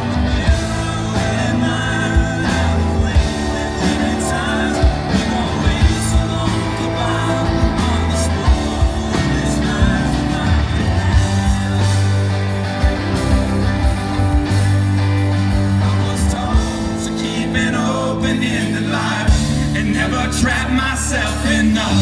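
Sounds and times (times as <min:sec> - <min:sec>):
live band playing: 0:00.0 - 0:22.0
person singing: 0:00.0 - 0:22.0.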